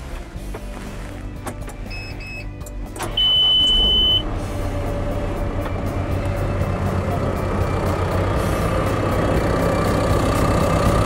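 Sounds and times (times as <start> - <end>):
diesel engine running: 0.0 - 11.0
short electronic beeps: 1.9 - 4.3
loud steady high beep: 3.2 - 4.2.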